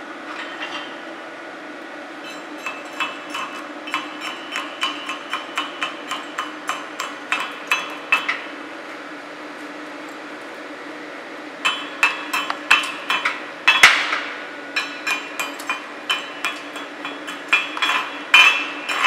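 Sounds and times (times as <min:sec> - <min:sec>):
steady low hum: 0:00.0 - 0:19.0
hammer tapping metal: 0:02.2 - 0:08.4, 0:11.6 - 0:19.0.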